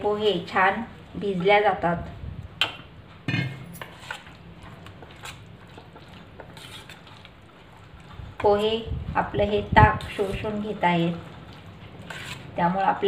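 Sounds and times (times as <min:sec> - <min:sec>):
metal spoon scraping steel container: 0:03.3 - 0:04.3, 0:06.4 - 0:07.0, 0:12.0 - 0:12.5.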